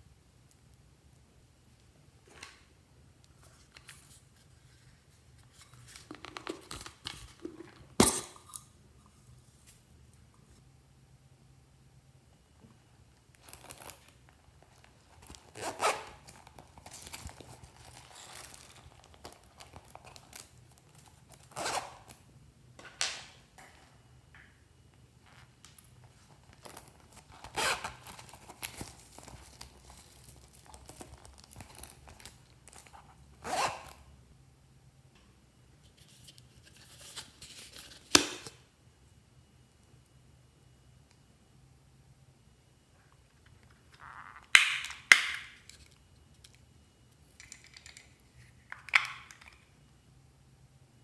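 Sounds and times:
zipper being pulled: 0:15.5 - 0:16.4, 0:21.4 - 0:22.2, 0:27.4 - 0:28.6, 0:33.4 - 0:34.0
plastic capsule clicking open: 0:44.4 - 0:45.9.

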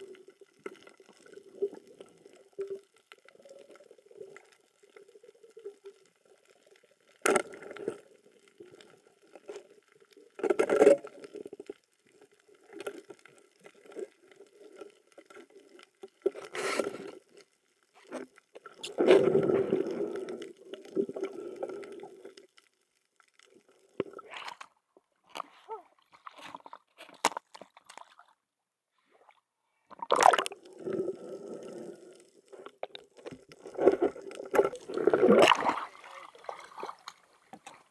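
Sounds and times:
muffled underwater bubbling: 0:29.9 - 0:32.2.

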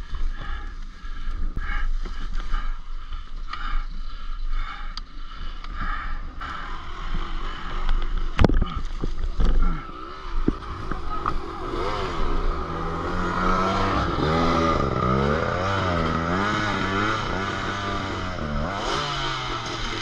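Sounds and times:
motorcycle engine idling: 0:00.0 - 0:08.7, 0:09.4 - 0:20.0
motorcycle engine revving: 0:06.4 - 0:08.7, 0:09.4 - 0:20.0.

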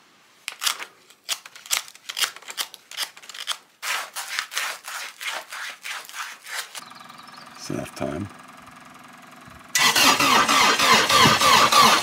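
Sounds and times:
sandpaper scratching metal: 0:03.8 - 0:06.8.

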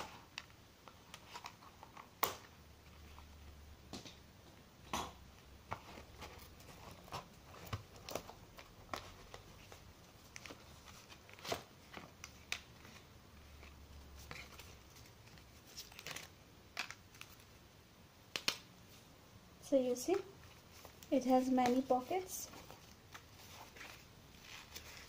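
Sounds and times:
paper and plastic crinkling: 0:05.7 - 0:17.6, 0:20.1 - 0:25.0.

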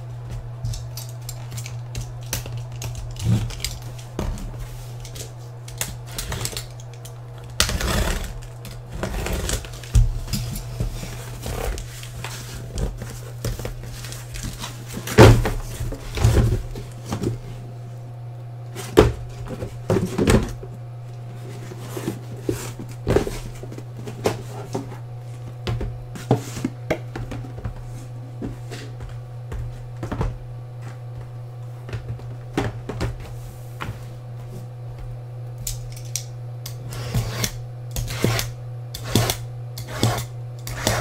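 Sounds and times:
steady low hum: 0:00.0 - 0:41.0
cardboard scraping and rustling: 0:07.6 - 0:17.4, 0:21.3 - 0:25.0.

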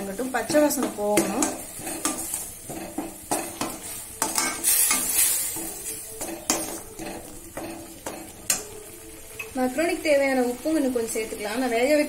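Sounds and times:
steady sizzle: 0:00.0 - 0:12.0
metal ladle clinking on pan: 0:00.5 - 0:08.7.

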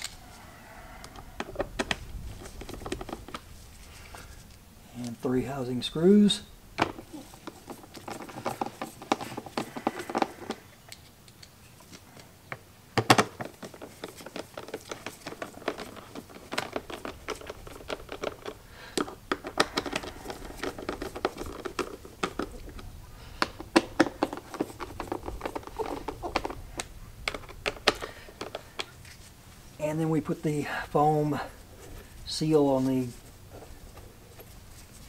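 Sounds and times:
plastic creaking: 0:13.0 - 0:28.9.

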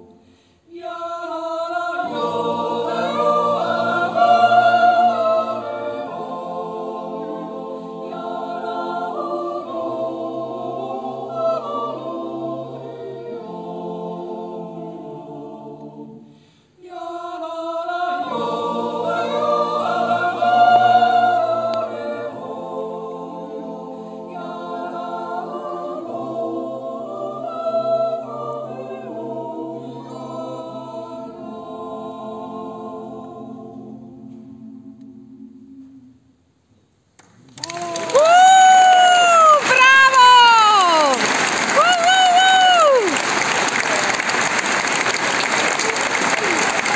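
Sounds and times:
choir yodeling a cappella: 0:00.0 - 0:36.4, 0:37.6 - 0:46.9.

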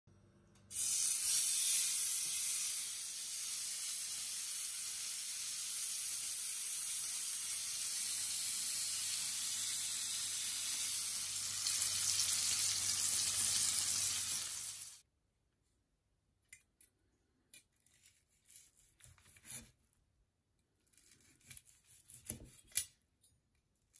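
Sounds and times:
steak sizzling in a frying pan: 0:00.7 - 0:15.0.

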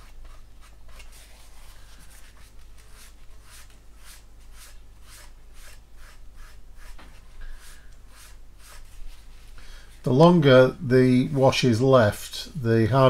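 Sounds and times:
tissue rubbing on plastic: 0:00.0 - 0:10.1.

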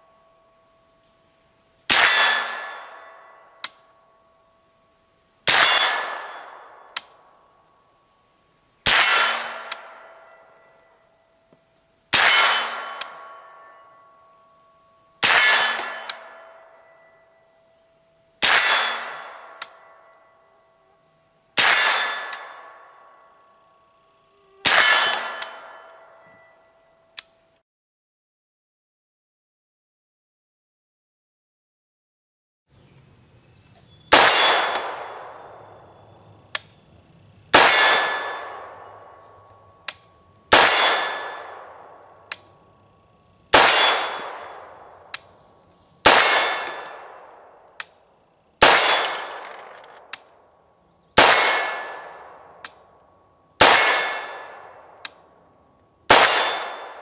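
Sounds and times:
suppressed pistol shots: 0:34.1 - 0:35.6, 0:37.5 - 0:42.5, 0:43.5 - 0:45.3, 0:46.0 - 0:48.0, 0:48.6 - 0:50.3, 0:51.2 - 0:52.8, 0:53.6 - 0:55.2, 0:56.1 - 0:57.0
light sharp ticks: 0:36.5 - 0:36.8, 0:42.3 - 0:42.5, 0:47.7 - 0:48.0, 0:52.6 - 0:53.1, 0:55.0 - 0:55.2.

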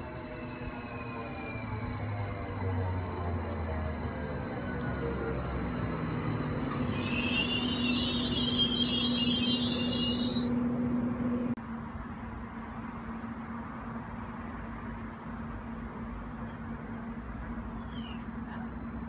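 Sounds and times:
wheels squealing: 0:00.0 - 0:10.8, 0:16.6 - 0:19.0
electric train humming: 0:00.0 - 0:11.6, 0:15.5 - 0:19.0.

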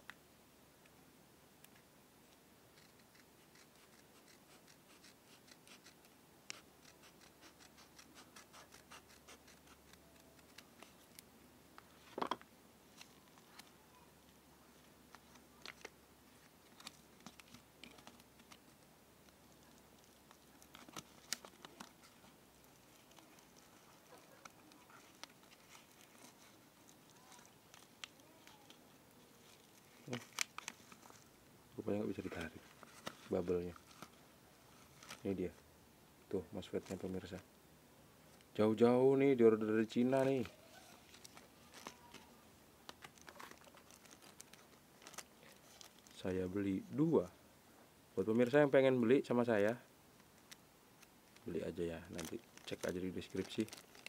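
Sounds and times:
padded envelope crinkling: 0:02.8 - 0:11.2, 0:15.1 - 0:35.4, 0:40.1 - 0:46.3, 0:50.4 - 0:54.0.

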